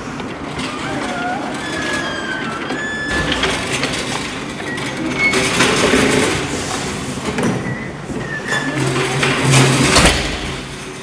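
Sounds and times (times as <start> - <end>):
serving cart rattling: 0.0 - 11.0
door handle and door opening: 0.5 - 6.0
high squeaks: 0.6 - 5.9.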